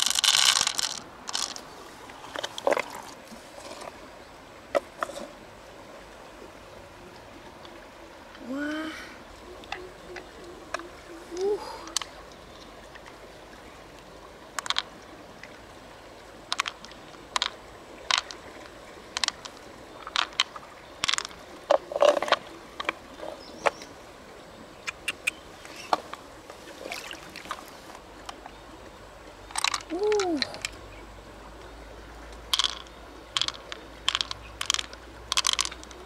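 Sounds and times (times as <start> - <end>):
shells clicking and tapping: 0.0 - 1.6, 14.6 - 14.9, 16.5 - 18.4, 19.2 - 21.4, 29.5 - 30.8, 32.5 - 36.0
river water rushing: 0.0 - 28.2.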